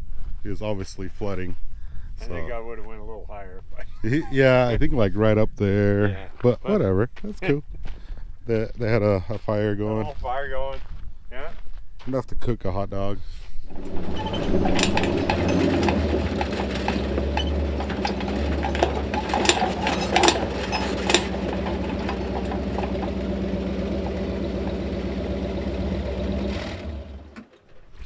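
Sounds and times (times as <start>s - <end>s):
vehicle engine running: 13.6s - 27.5s
sharp clicks or rattles: 13.7s - 23.2s.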